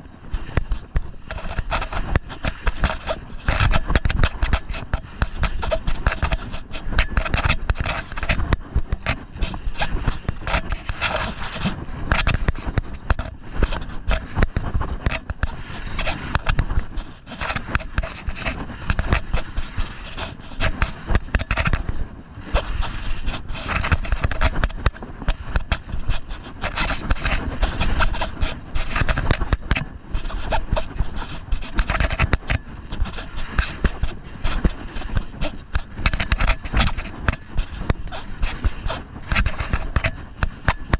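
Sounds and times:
skis scraping over snow: 0:00.0 - 0:40.9
wind buffeting microphone: 0:00.0 - 0:40.9.

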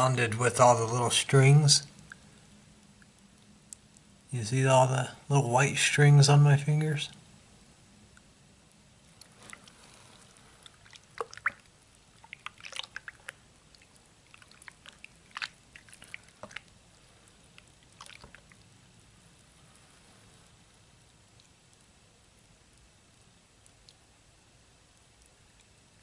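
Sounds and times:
drips and small splashes: 0:01.8 - 0:04.2, 0:08.1 - 0:26.0
hand squishing wet slime: 0:09.1 - 0:18.7.

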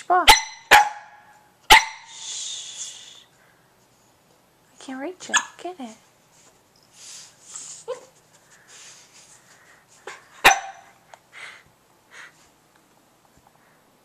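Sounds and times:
dog barking sharply: 0:00.3 - 0:02.1, 0:10.4 - 0:11.0.

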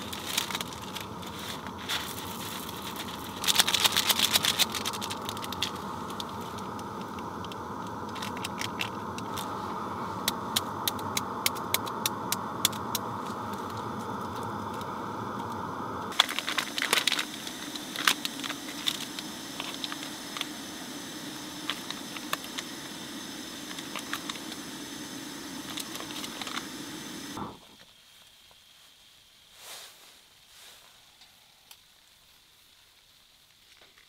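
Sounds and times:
plastic food package crinkling: 0:00.0 - 0:09.5, 0:16.1 - 0:20.5
gas stove burner hissing: 0:00.0 - 0:34.0.

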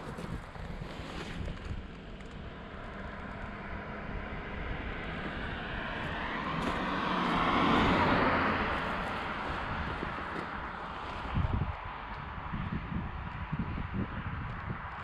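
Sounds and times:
car driving past: 0:02.5 - 0:11.4.

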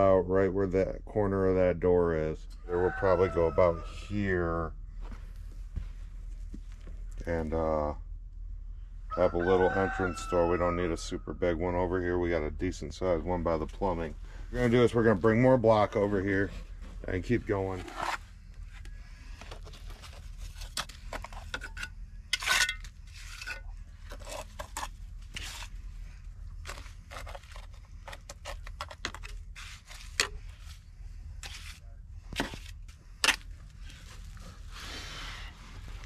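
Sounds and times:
trowel scraping wet mortar: 0:20.1 - 0:25.8, 0:26.6 - 0:30.6, 0:31.4 - 0:33.5.

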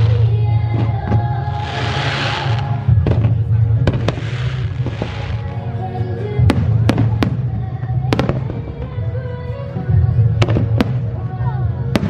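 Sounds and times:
fireworks hissing: 0:00.0 - 0:05.8
music playing: 0:00.0 - 0:12.0
fireworks shells bursting: 0:01.5 - 0:02.8, 0:03.9 - 0:05.5.

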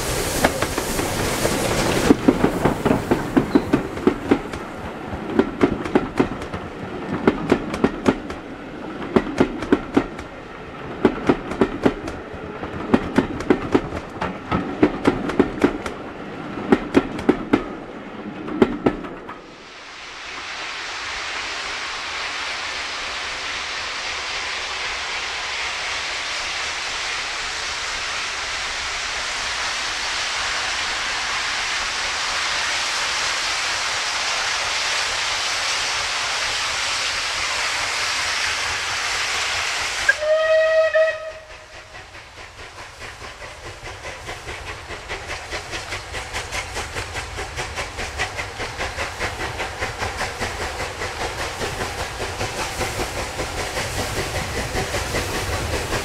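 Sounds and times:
steam locomotive hissing: 0:00.0 - 0:56.0
steam whistle: 0:40.1 - 0:41.9.

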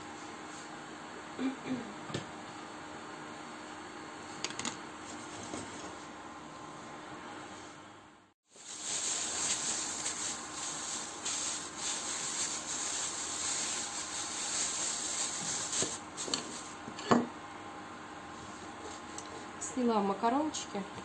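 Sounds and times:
plastic bag rustling: 0:08.5 - 0:16.8.

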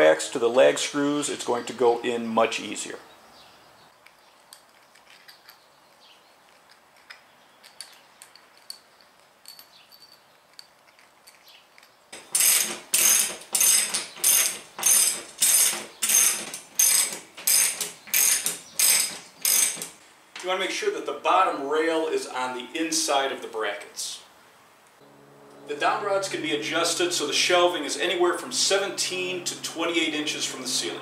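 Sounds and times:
faint clicks of screws handled: 0:04.0 - 0:12.0
ratchet wrench clicking: 0:12.2 - 0:19.9.

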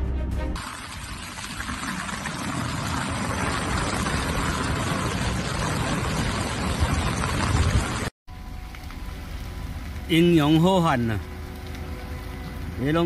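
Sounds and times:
wind and water rushing: 0:00.6 - 0:08.1.

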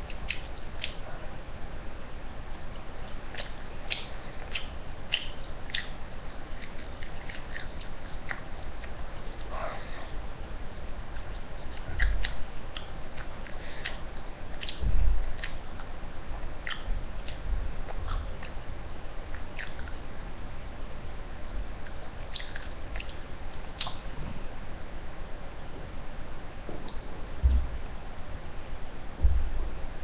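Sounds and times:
child chewing food: 0:00.0 - 0:01.3, 0:02.4 - 0:18.7, 0:19.3 - 0:20.1, 0:21.8 - 0:24.1
wet mouth clicks and smacks: 0:00.1 - 0:01.0, 0:02.7 - 0:09.5, 0:10.4 - 0:15.9, 0:16.6 - 0:18.6, 0:19.3 - 0:20.0, 0:21.8 - 0:24.0
dull low thumps: 0:14.8 - 0:15.3, 0:26.6 - 0:28.2, 0:29.0 - 0:30.0.

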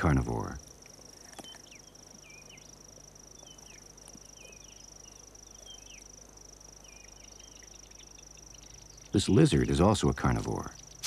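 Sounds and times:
insects trilling: 0:00.0 - 0:11.0
short chirping calls: 0:01.1 - 0:09.9.

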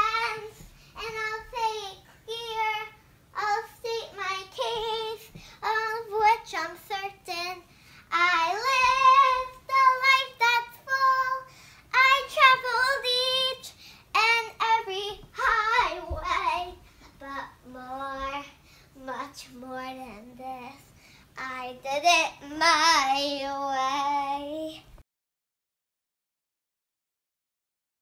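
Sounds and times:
girl singing unaccompanied: 0:00.0 - 0:25.0.

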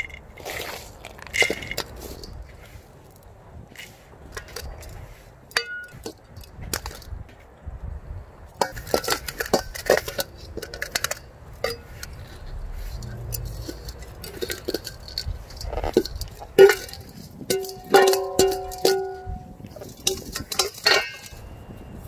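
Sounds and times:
trowel clinking and scraping: 0:00.0 - 0:02.8, 0:03.8 - 0:07.0, 0:08.6 - 0:21.6
grit pattering: 0:08.6 - 0:21.4.

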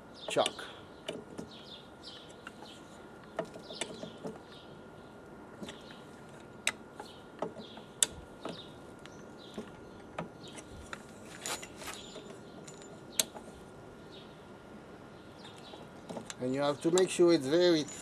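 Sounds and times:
sharp metallic clicks and knocks: 0:00.2 - 0:04.5, 0:09.5 - 0:13.5.

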